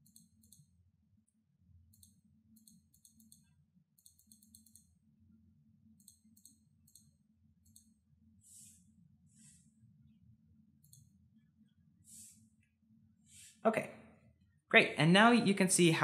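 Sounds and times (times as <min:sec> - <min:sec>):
computer controls clicking: 0:00.0 - 0:05.0, 0:05.9 - 0:08.0, 0:10.8 - 0:11.2
low steady room hum: 0:00.0 - 0:16.0.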